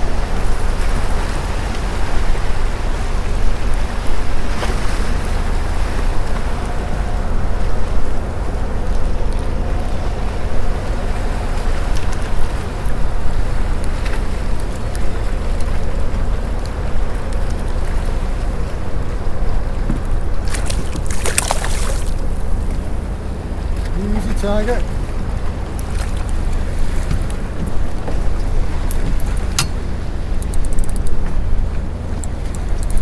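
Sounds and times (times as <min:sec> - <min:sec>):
water lapping against boat: 0:00.0 - 0:33.0
wind rumbling on microphone: 0:00.0 - 0:33.0
light clicks: 0:30.4 - 0:31.4, 0:32.2 - 0:33.0.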